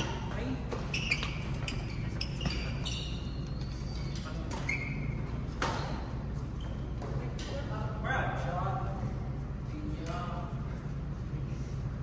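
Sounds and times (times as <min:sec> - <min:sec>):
sneakers squeaking on court: 0:00.0 - 0:07.6.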